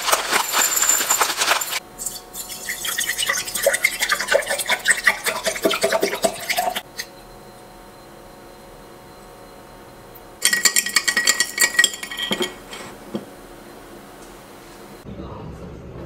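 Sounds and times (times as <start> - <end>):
drink pouring into a glass: 2.0 - 6.8.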